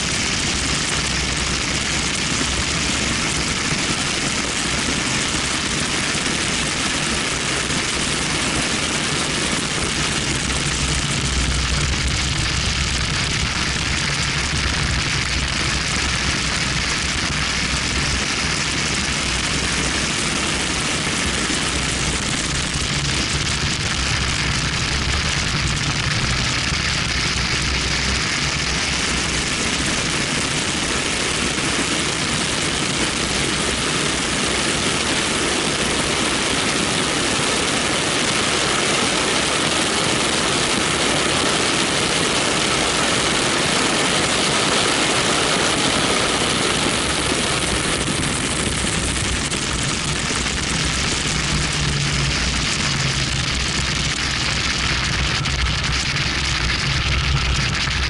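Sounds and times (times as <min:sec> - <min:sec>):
car engine drone: 0:00.0 - 0:58.0
wind rushing over camera: 0:00.0 - 0:58.0.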